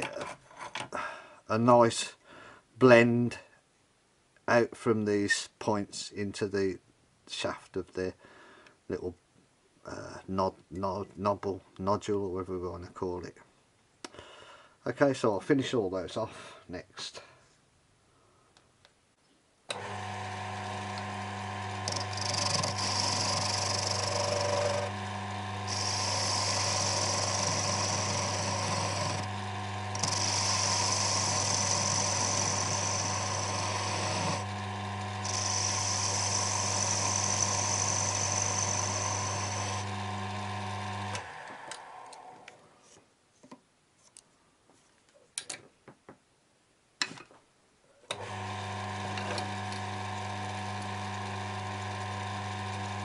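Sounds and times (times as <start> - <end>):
lathe motor humming: 19.7 - 42.4, 48.2 - 53.0
cutting tool hissing on wood: 25.6 - 29.3, 29.9 - 34.5, 35.2 - 39.8.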